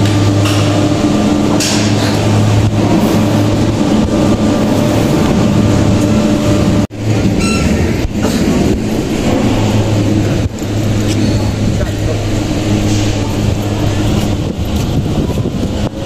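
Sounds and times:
machine hum and rumble: 0.0s - 16.0s.

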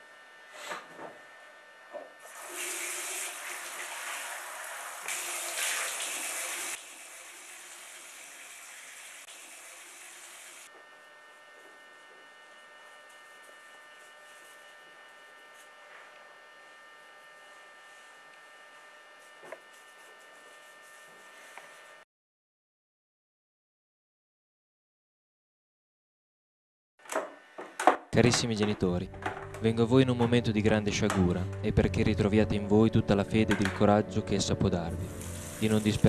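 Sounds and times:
tap water running into sink: 2.3s - 10.7s
electrical hum: 27.1s - 36.0s.

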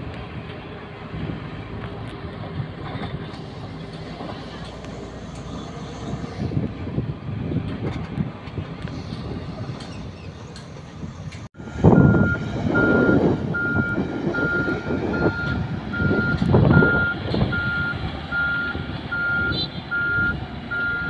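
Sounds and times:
diesel engine running: 0.0s - 21.0s
reversing alarm beeping: 11.6s - 21.0s.

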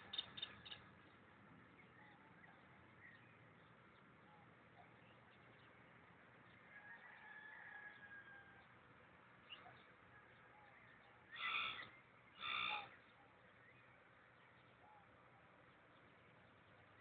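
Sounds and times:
faint distant bird chirps: 0.0s - 8.7s, 9.4s - 17.0s
loud short bird calls: 11.3s - 13.0s.

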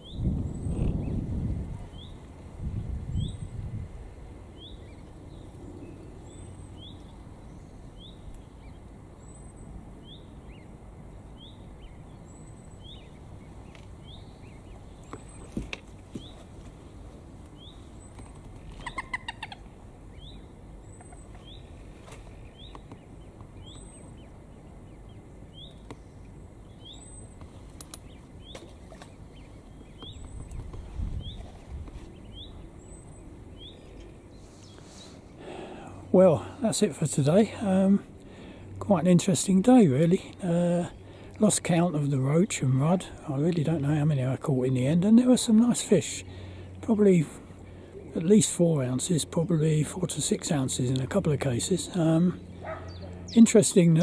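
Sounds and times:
stuttering lower bird call: 18.6s - 21.7s.

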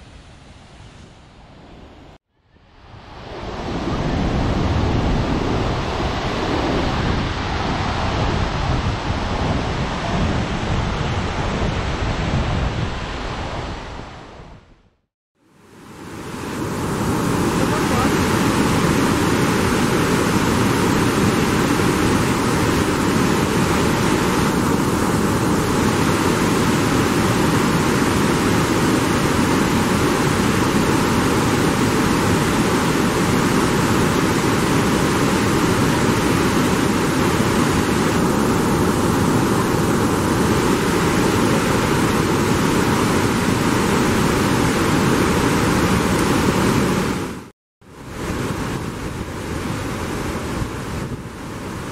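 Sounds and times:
waterfall rushing: 15.7s - 47.4s.

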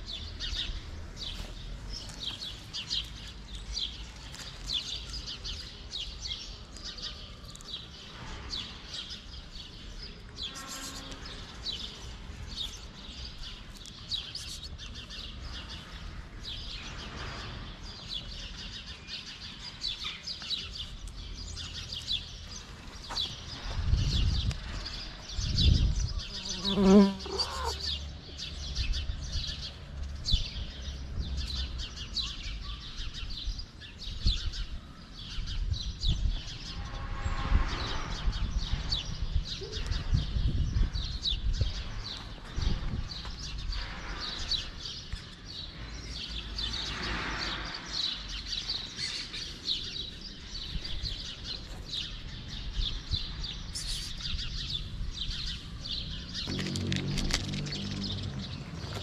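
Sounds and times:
small birds chirping: 0.0s - 37.0s, 38.2s - 59.0s
low pitched bird call: 53.7s - 54.6s
low handling rumble: 56.3s - 59.0s.

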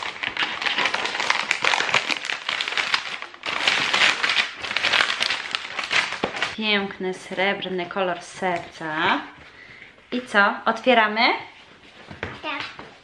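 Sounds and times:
plastic film crinkling: 0.0s - 6.6s.

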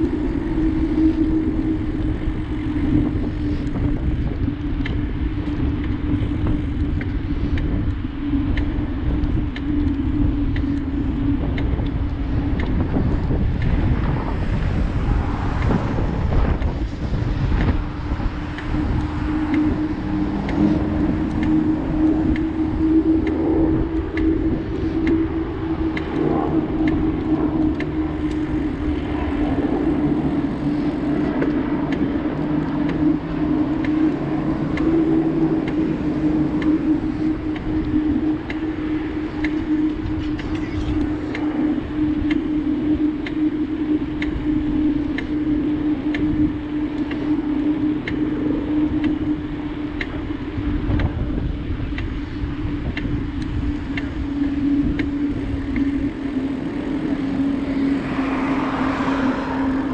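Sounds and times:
bicycle tyres rolling on asphalt: 0.0s - 59.9s
wind buffeting microphone: 0.0s - 59.9s
car traffic passing: 14.0s - 37.4s, 55.3s - 59.9s.

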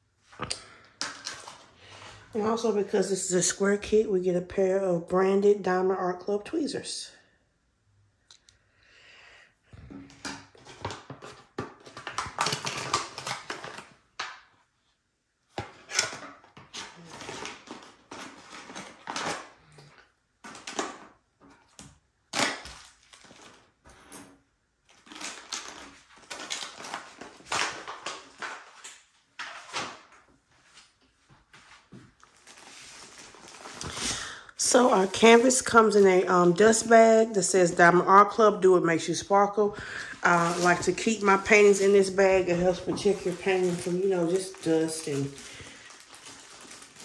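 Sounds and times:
packaging rustling and crinkling: 1.0s - 2.2s, 10.1s - 14.4s, 15.6s - 21.8s, 22.4s - 36.4s, 39.8s - 47.0s.

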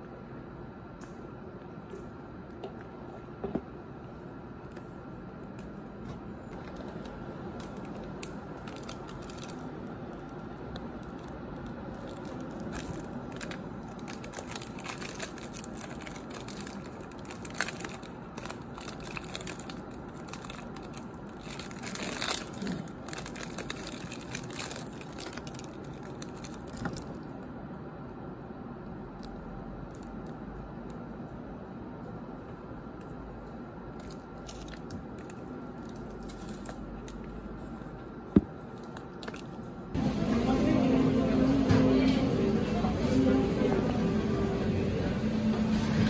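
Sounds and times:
plastic wrapper crinkling: 7.6s - 27.3s, 33.9s - 37.4s.

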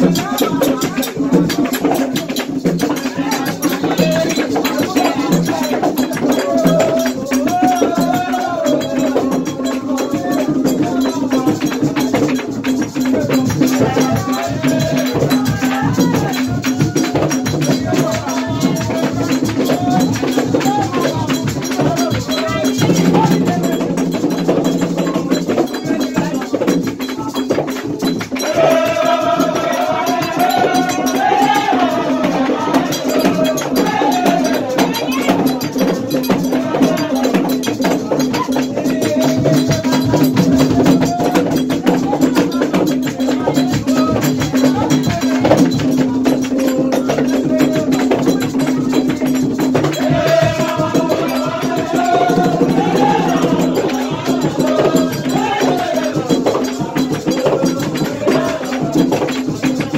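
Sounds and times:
fast hand clapping: 0.0s - 32.4s
rattling percussion: 0.0s - 59.9s
voices singing: 0.0s - 59.9s.

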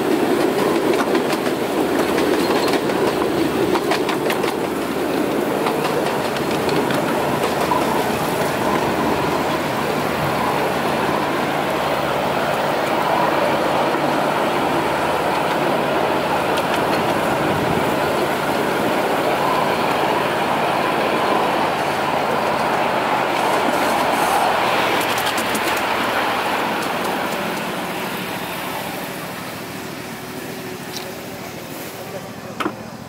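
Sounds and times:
miniature train wheels clattering on rails: 0.4s - 4.8s.

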